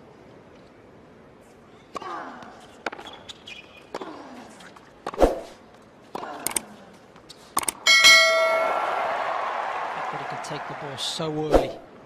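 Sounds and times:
bell-like notification ding: 7.9s - 8.8s.

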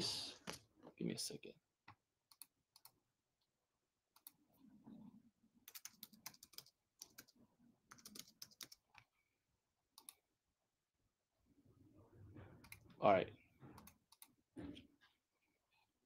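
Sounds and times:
faint keyboard typing: 1.9s - 3.0s, 4.1s - 4.7s, 5.6s - 9.1s, 9.9s - 10.3s, 12.5s - 13.0s, 13.7s - 14.5s.

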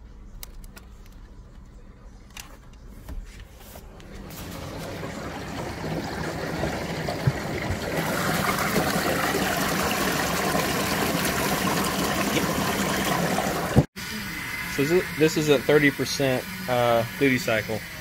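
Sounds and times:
electric pump running: 4.0s - 18.0s
water churning and splashing: 4.1s - 13.9s.

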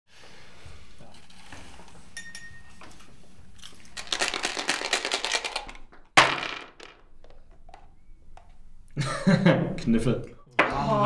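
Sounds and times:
dice rattling in a cup: 3.6s - 7.0s.

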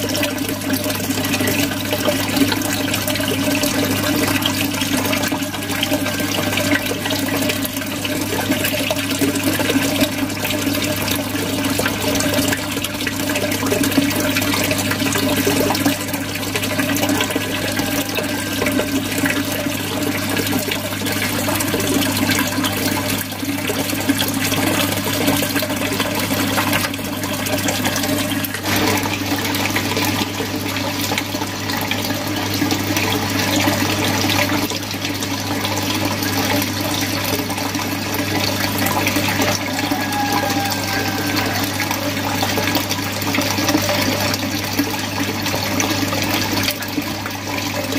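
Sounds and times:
filter water splashing and gurgling: 0.0s - 47.9s.

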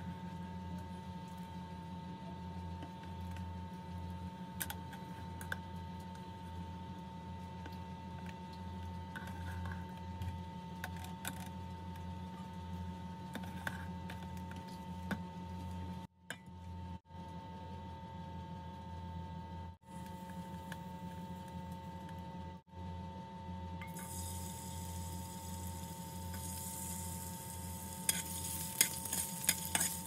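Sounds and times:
steady low hum: 0.0s - 30.0s
utensils clinking on metal pot: 28.1s - 30.0s.

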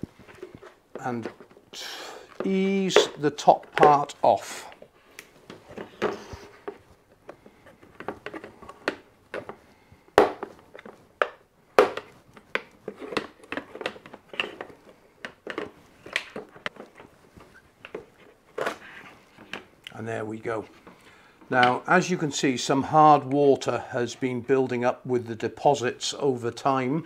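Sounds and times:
sharp plastic knocks: 10.2s - 16.8s.

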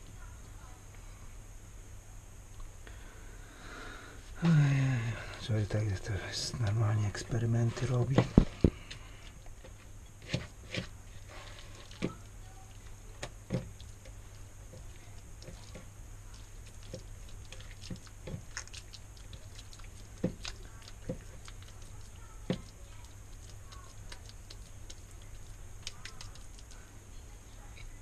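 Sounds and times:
steady low hum: 0.0s - 28.0s
hands patting wet mixture: 7.6s - 27.0s.

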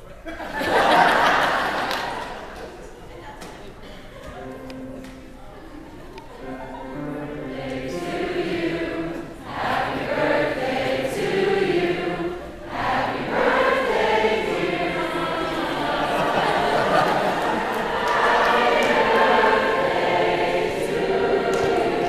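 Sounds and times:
choir singing: 6.4s - 22.0s.

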